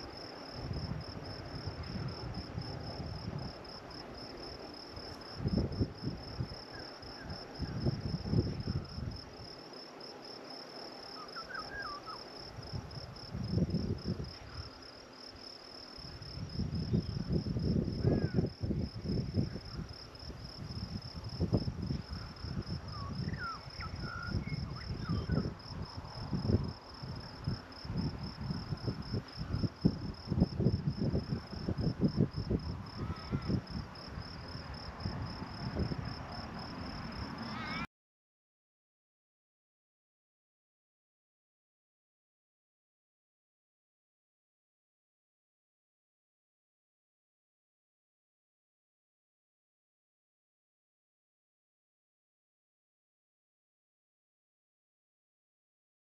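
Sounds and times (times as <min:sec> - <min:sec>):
wind buffeting microphone: 0:00.0 - 0:09.6, 0:12.4 - 0:14.8, 0:16.0 - 0:37.4
insects chorus: 0:00.0 - 0:37.9.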